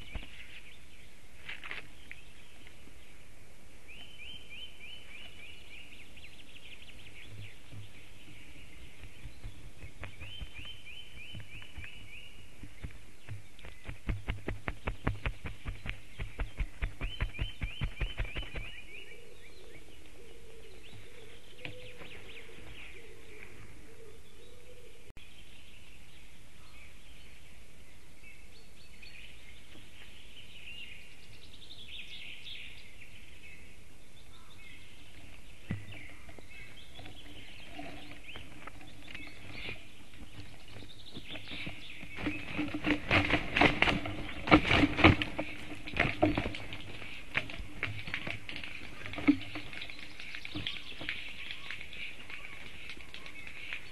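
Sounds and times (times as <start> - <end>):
songbirds chirping faintly: 0.0 - 53.9
wing-flapping and clattering: 7.2 - 18.8, 36.9 - 53.9.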